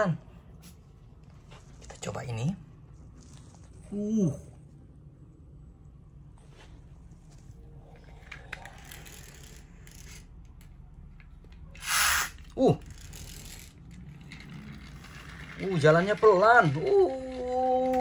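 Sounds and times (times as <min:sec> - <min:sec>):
toy gear clicking: 0:08.0 - 0:18.0
toy motor whirr: 0:08.1 - 0:10.4, 0:11.6 - 0:18.0.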